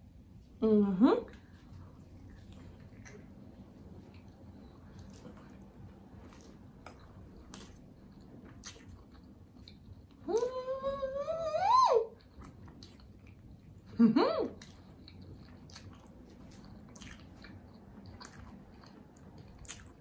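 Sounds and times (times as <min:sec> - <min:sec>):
wet chewing clicks: 0:02.1 - 0:10.5, 0:12.2 - 0:13.9, 0:14.6 - 0:20.0
woman humming mmm: 0:10.3 - 0:12.1.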